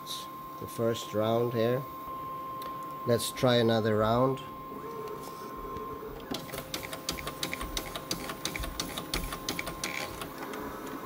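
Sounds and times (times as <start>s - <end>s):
scanner machine hum: 0.0s - 11.0s
rapid clicking of scanner: 6.2s - 11.0s.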